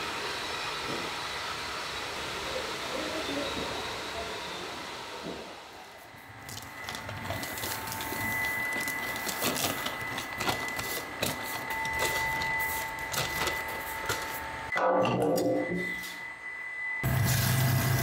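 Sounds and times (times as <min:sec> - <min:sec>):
high-pitched machine whine: 0:00.0 - 0:18.0
paper sack crinkling: 0:06.3 - 0:14.5.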